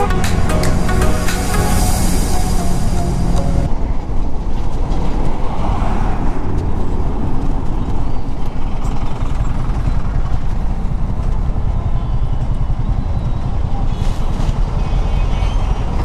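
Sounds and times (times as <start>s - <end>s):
buses and trucks passing: 0.0s - 16.0s
wind rush: 1.8s - 8.8s.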